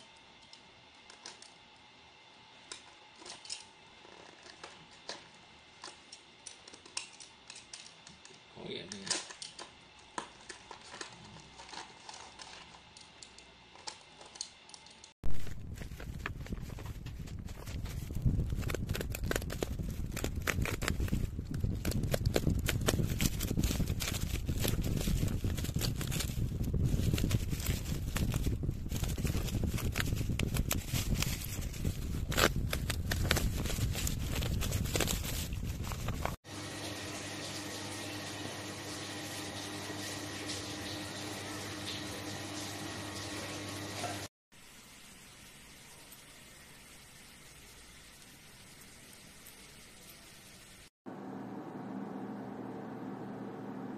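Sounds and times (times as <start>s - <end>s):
packaging rustling: 10.3s - 13.0s, 15.2s - 36.4s.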